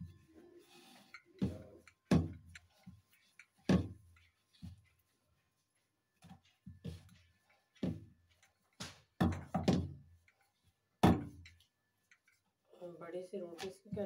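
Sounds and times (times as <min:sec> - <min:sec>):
rolling pin knocking on wooden board: 0:01.4 - 0:02.4, 0:03.6 - 0:04.0, 0:08.9 - 0:10.0.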